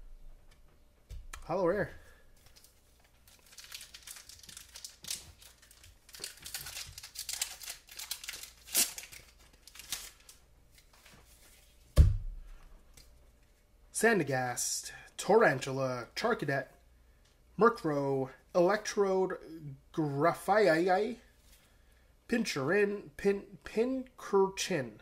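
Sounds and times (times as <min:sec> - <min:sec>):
foil wrapper crinkling and tearing: 0:02.4 - 0:11.4
dull thump: 0:12.0 - 0:12.4.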